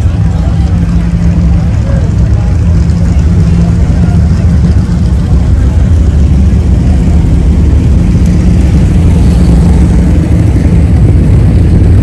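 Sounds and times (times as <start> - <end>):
motorcycle engines rumbling: 0.0 - 12.0.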